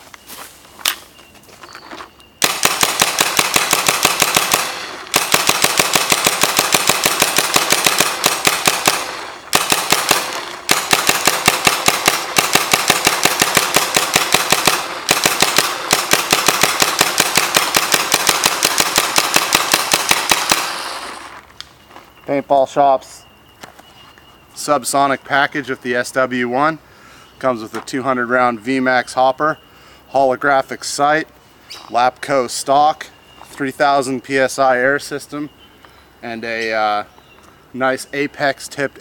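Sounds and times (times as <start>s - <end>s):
paintball marker rapid shots: 2.4s - 21.4s.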